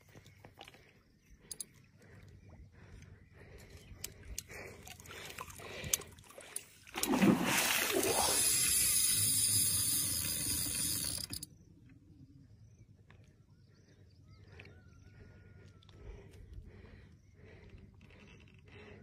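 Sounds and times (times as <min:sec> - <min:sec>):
fish splashing in water: 0:06.3 - 0:09.4.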